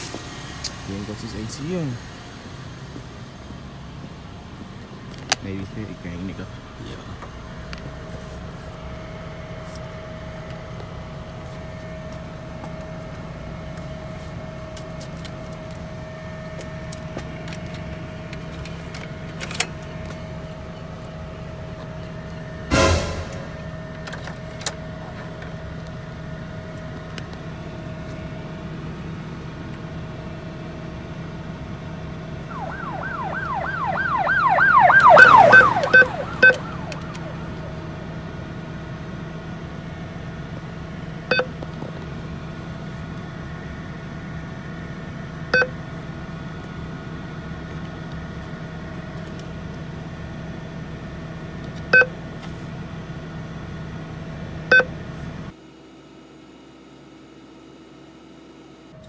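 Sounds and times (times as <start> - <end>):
steady low hum: 0.0 - 59.0
warbling siren: 32.4 - 39.1
keypad beeps: 35.0 - 37.3.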